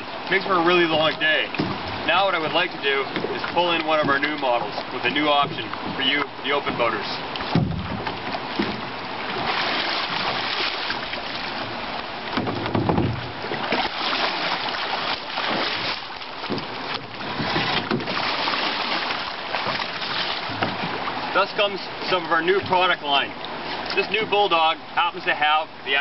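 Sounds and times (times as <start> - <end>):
low rumbles: 0.0 - 14.8
water splashing from wading: 0.0 - 26.0.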